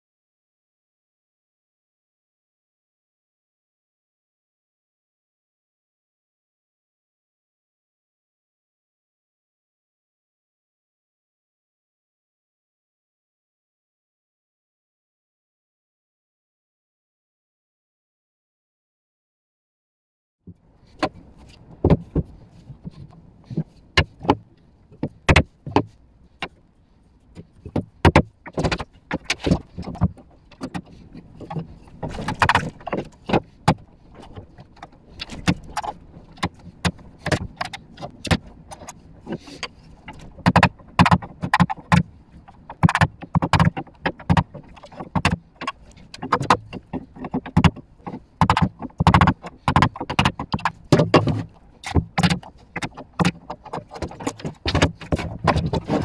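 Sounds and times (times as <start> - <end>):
wooden knocks and clatter: 20.9 - 26.6, 27.3 - 56.0.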